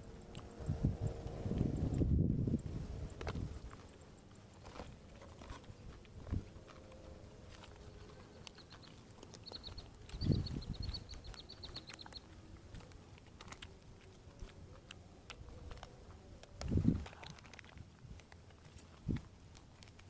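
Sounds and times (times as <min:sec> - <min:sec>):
bird chirping: 0:07.5 - 0:13.7.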